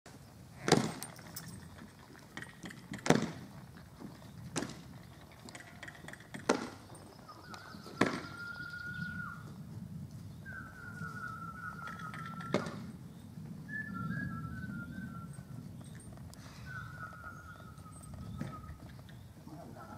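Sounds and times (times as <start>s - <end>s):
person whistling long note: 10.4s - 12.7s, 13.7s - 15.5s.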